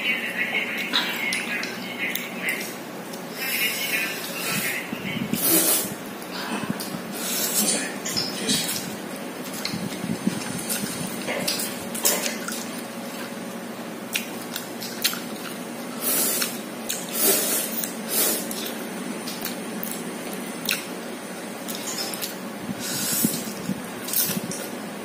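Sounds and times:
person chewing noodles wetly: 8.5 - 24.8
person slurping noodles: 16.0 - 18.5.

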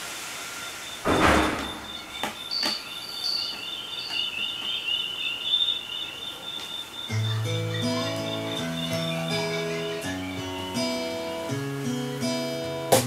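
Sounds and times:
thin steady high tone: 0.4 - 12.4
faint high chirping: 0.5 - 12.8
cajon thump: 1.1 - 2.4.

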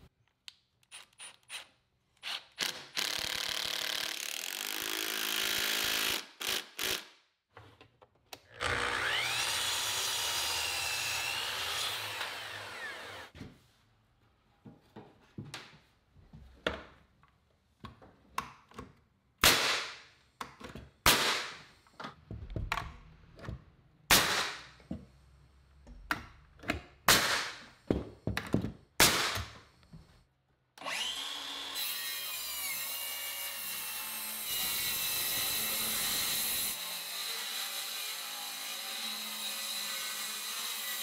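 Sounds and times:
drill whining: 8.5 - 13.3, 30.8 - 31.8
miter saw cutting wood: 8.6 - 13.3, 30.8 - 41.0
nail gun shots: 19.4 - 20.0, 21.1 - 21.6, 24.1 - 24.7, 27.1 - 27.6, 29.0 - 29.5.

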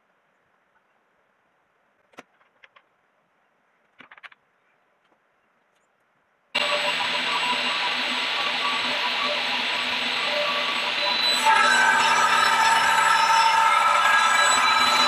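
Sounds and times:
table saw running: 6.6 - 15.0.

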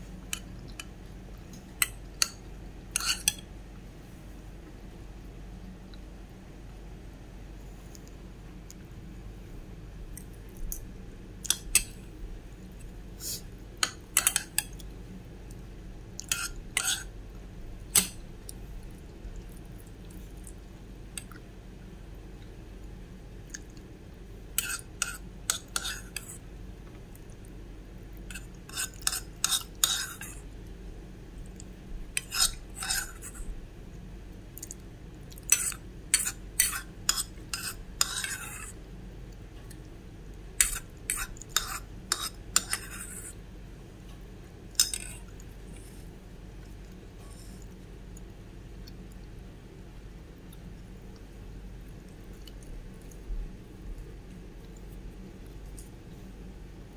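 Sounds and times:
metal spoon scraping a bowl: 3.0 - 3.4, 13.8 - 14.6, 16.3 - 17.1, 24.6 - 26.4, 28.3 - 30.4, 32.2 - 33.4, 35.5 - 38.7, 40.6 - 43.3.

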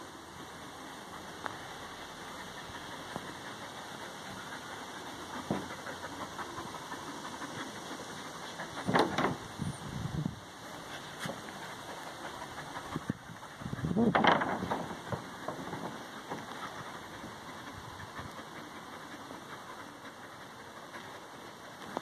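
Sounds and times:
dogs growling in play: 0.4 - 9.6.

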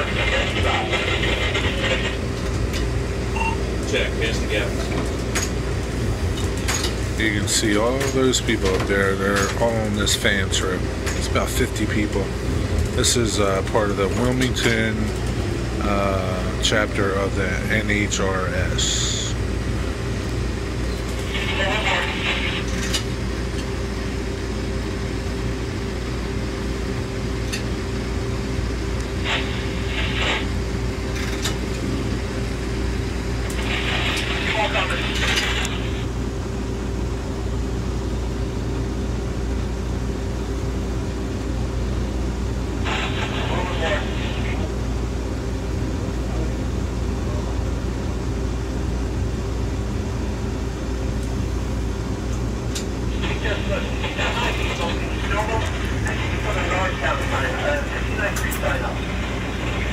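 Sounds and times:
wheels rumbling on rail: 0.0 - 3.1
train car rumble: 0.0 - 48.2, 49.3 - 59.9
railcar motor hum: 0.0 - 59.9.

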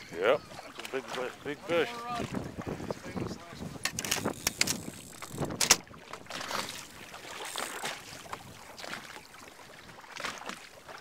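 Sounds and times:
waves lapping against boat: 0.0 - 11.0.

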